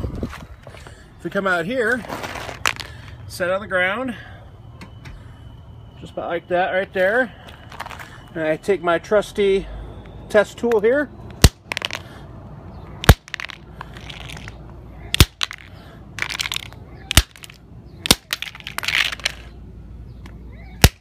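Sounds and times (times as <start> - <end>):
hammer striking battery pack: 11.3 - 12.0, 13.0 - 13.6, 15.2 - 19.3.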